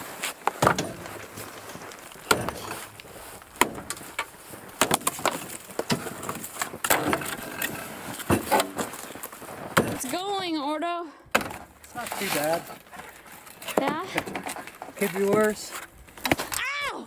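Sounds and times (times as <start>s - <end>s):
axe chopping frozen fish: 2.2s - 2.8s, 4.8s - 7.3s.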